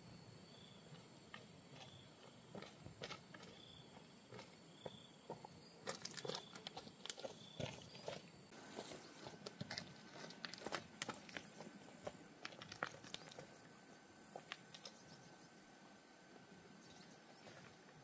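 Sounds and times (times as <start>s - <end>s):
handling clicks and crackles: 5.8s - 8.0s, 9.2s - 15.1s.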